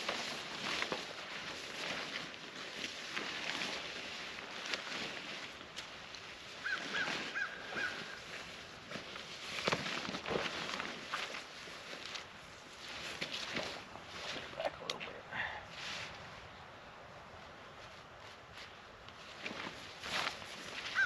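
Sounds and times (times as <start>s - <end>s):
tarp rustling and flapping: 0.0s - 21.0s
bird calling: 6.6s - 8.4s.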